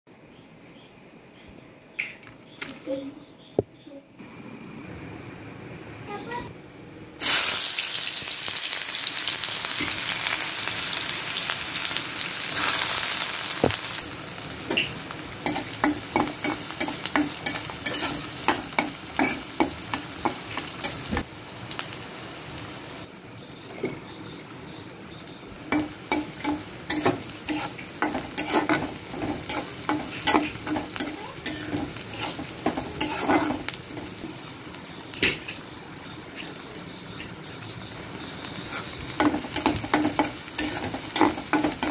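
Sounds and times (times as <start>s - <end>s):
onions sizzling in hot oil: 7.2s - 41.9s
spatula scraping metal pan: 25.7s - 33.7s.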